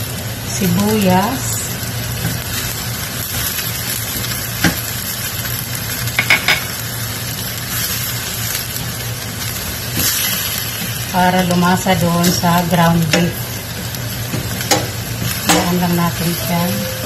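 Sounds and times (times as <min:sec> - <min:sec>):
meat and onion sizzling in frying pan: 0:00.0 - 0:17.0
spoon knocking against pan: 0:06.2 - 0:06.7
steady low hum: 0:08.9 - 0:17.0.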